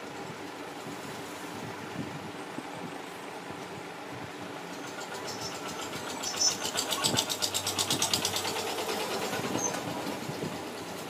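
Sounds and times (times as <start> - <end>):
engine running with quick pulse: 4.9 - 11.0.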